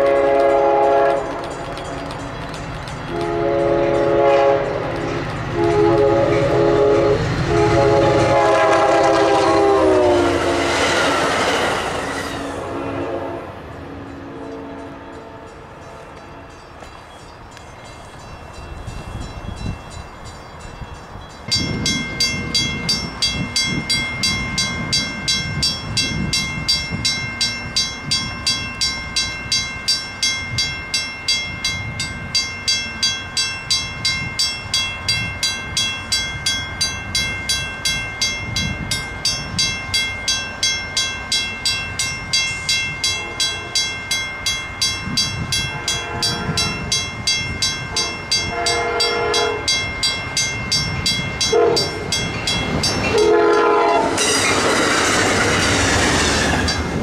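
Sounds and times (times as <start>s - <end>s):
train horn blasts: 0.0s - 1.7s, 3.1s - 11.2s, 12.3s - 16.5s, 43.1s - 43.9s, 45.6s - 46.8s, 47.9s - 49.8s, 51.4s - 52.2s, 53.1s - 54.3s
crossing bell ringing: 0.0s - 57.0s.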